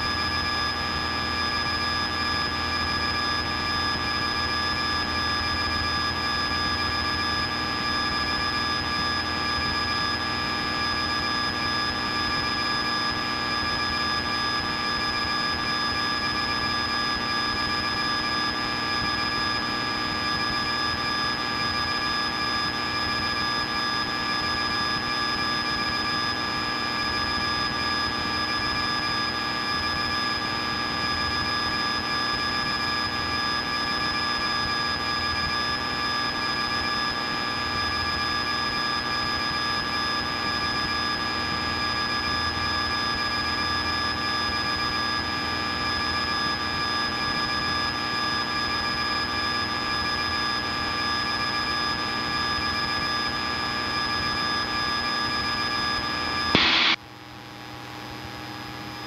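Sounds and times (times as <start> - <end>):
steady high tones: 56.6 - 57.0.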